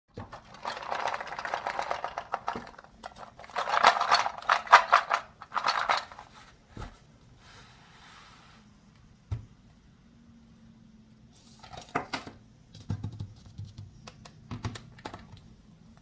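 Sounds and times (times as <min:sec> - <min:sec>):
plastic toy pieces clattering: 0:00.2 - 0:06.3.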